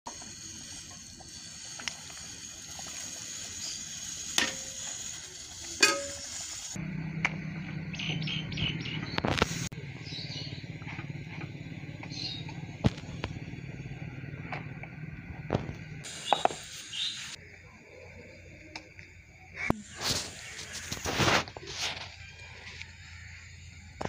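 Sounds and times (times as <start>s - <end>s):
small birds chirping: 0.2s - 5.8s, 7.4s - 21.0s
steady low hum: 6.8s - 16.8s.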